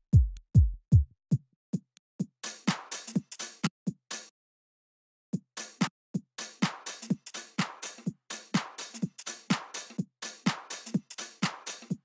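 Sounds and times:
house drum loop: 0:00.0 - 0:01.1, 0:05.4 - 0:12.0.

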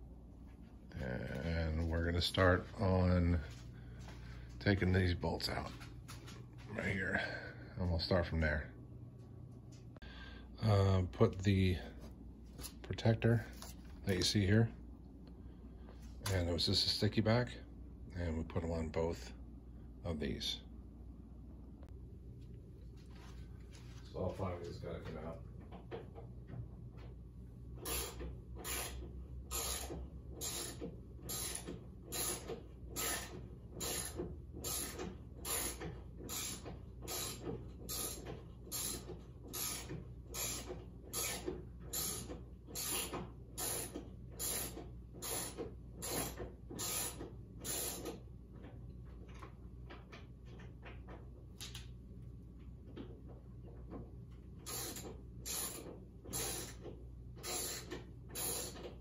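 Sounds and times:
ratchet wrench clicking: 0:27.9 - 0:39.0, 0:39.6 - 0:48.2, 0:54.7 - 0:56.8, 0:57.4 - 0:58.8.

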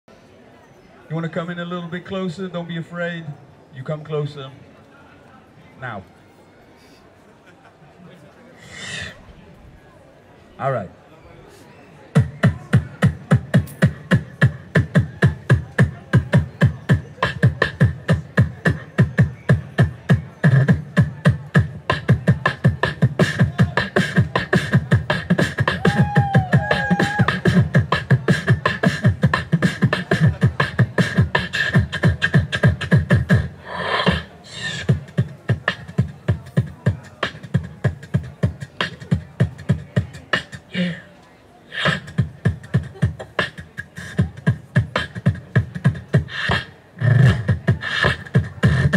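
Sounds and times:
beatboxing: 0:08.6 - 0:09.3, 0:12.1 - 0:41.1, 0:41.7 - 0:48.9.

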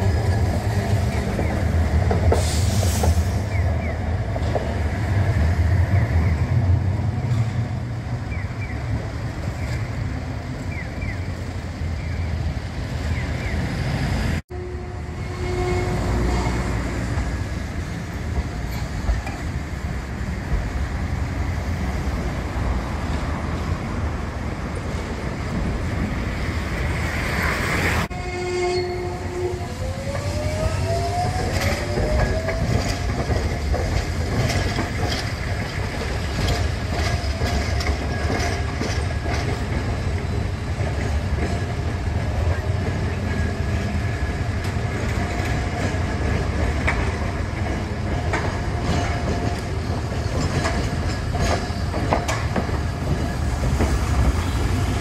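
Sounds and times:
wheels clicking over rail joints: 0:30.1 - 0:55.0.

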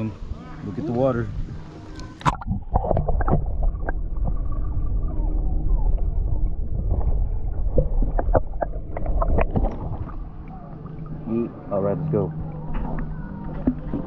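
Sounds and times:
underwater low rumble: 0:00.0 - 0:14.0
clicks of moving water: 0:01.7 - 0:04.7, 0:06.9 - 0:11.6, 0:12.3 - 0:14.0.

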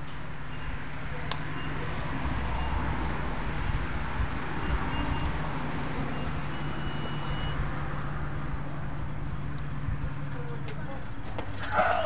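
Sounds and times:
faint high beeps: 0:06.1 - 0:07.6.

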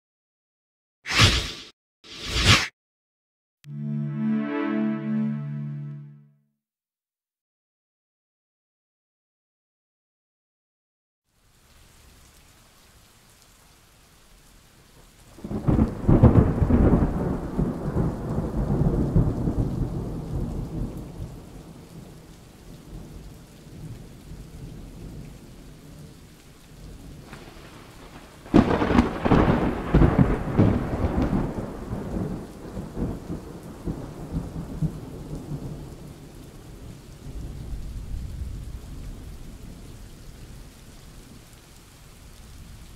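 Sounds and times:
steady rain: 0:11.3 - 0:42.9
loud thunderclaps: 0:15.4 - 0:21.5, 0:27.2 - 0:35.8.

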